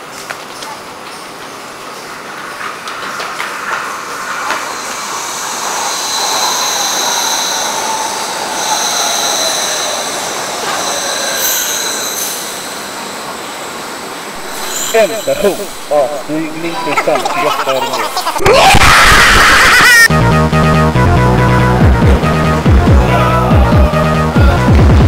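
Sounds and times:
train rumbling: 0.0 - 25.0
braking train whine: 2.4 - 25.0
wheel squeal: 3.6 - 16.6.

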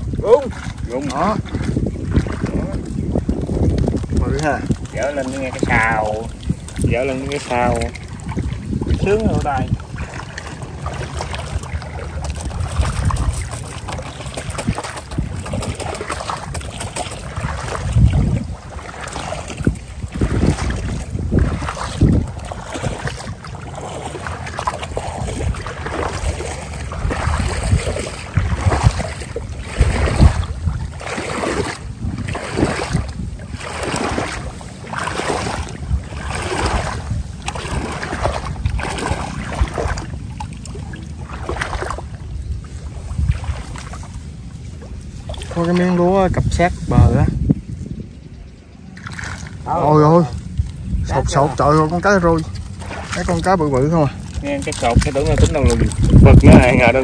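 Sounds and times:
boat splashing through shallow water: 0.0 - 57.0
wind buffeting microphone: 0.0 - 57.0.

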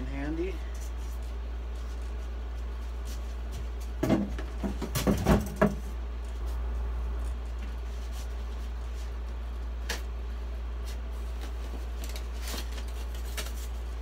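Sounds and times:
steady low hum: 0.0 - 14.0
plastic packaging rustling: 10.8 - 14.0.

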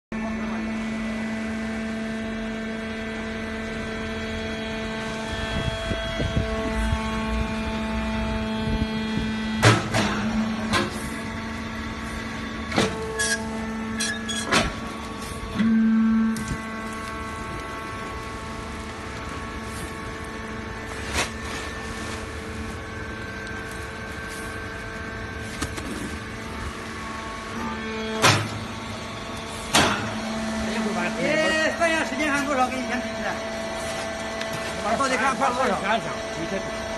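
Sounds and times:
hydraulic motor and pump humming: 0.1 - 36.9.

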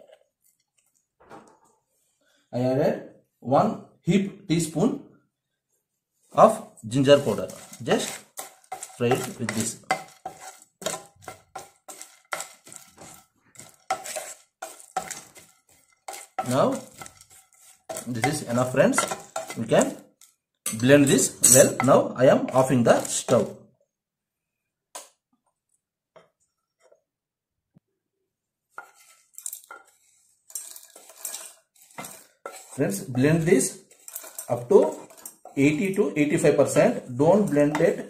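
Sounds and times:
wooden spatula scraping a pan: 6.0 - 23.6, 28.7 - 38.0.

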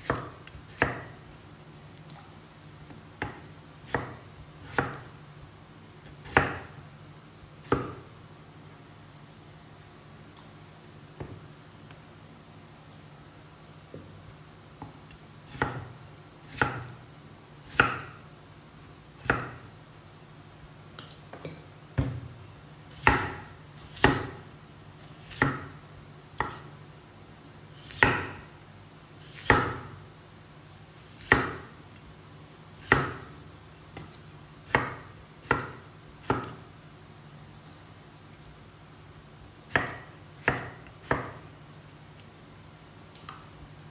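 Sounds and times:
knife chopping potato on wood: 0.0 - 1.2, 3.2 - 5.1, 6.0 - 6.8, 7.6 - 8.1, 14.8 - 17.0, 17.6 - 18.2, 19.2 - 19.7, 22.0 - 24.4, 25.2 - 26.7, 27.8 - 28.5, 29.2 - 30.0, 31.1 - 31.8, 32.8 - 33.3, 34.0 - 36.6, 39.6 - 41.4.

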